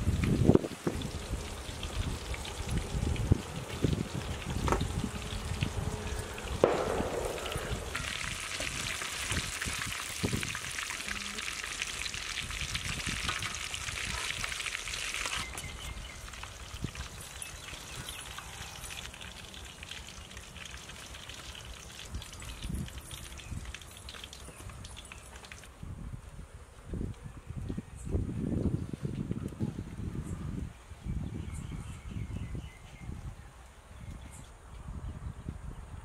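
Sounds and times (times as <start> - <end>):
chicken sizzling in hot oil: 0.0 - 24.4.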